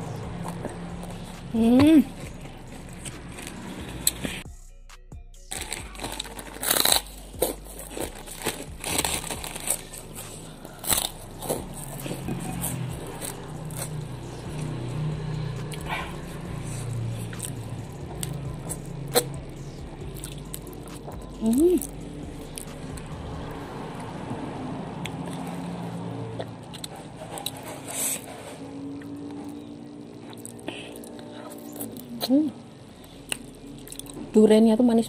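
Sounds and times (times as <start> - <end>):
soft chewing: 0.0 - 4.4, 5.5 - 24.1, 25.0 - 34.3
crunching crackers: 5.5 - 14.8, 33.0 - 34.3.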